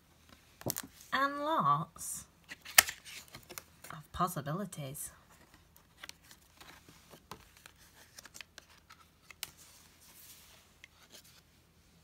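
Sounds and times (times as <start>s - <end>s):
book pages rustling and turning: 0.2s - 1.1s, 2.5s - 4.0s, 5.2s - 11.7s.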